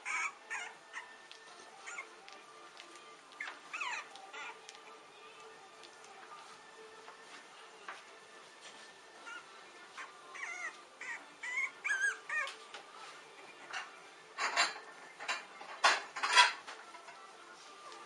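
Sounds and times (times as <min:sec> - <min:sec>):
puppy whimpering: 0:00.0 - 0:05.0, 0:09.2 - 0:12.6.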